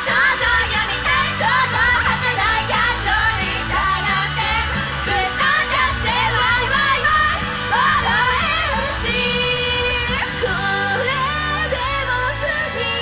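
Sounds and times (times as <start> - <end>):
pop backing track with bass and beat: 0.0 - 13.0
woman singing: 0.0 - 13.0.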